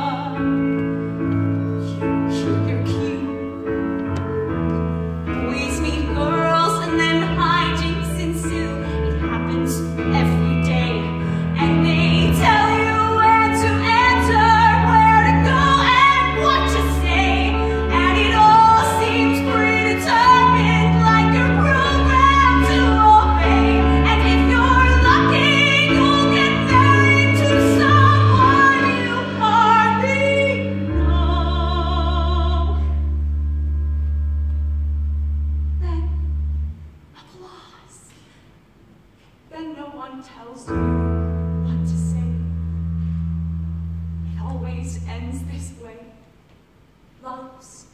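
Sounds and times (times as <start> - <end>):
woman singing: 0.0 - 0.8, 1.8 - 3.7, 5.3 - 33.0
instrumental accompaniment: 0.0 - 37.1.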